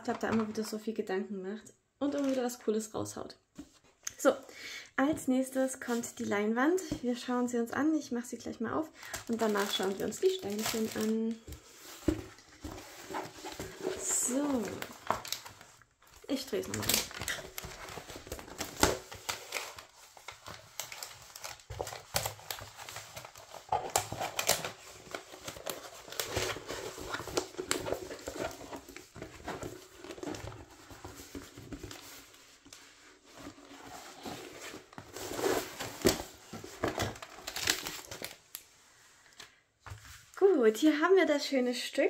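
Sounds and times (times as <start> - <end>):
plastic packaging crinkling: 9.0 - 32.8, 33.4 - 38.6.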